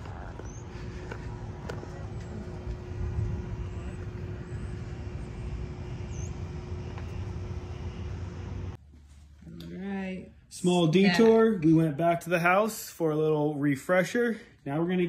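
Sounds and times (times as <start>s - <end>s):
wind buffeting microphone: 0.0s - 8.8s
faint steady hum: 0.0s - 11.4s.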